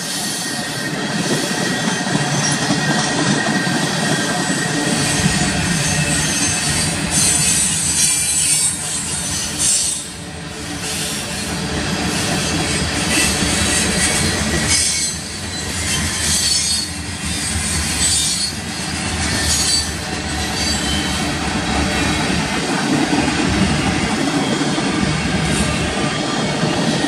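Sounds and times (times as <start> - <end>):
train wheels rumbling on rail: 0.0 - 27.0
high-pitched wheel screeches: 12.6 - 21.3.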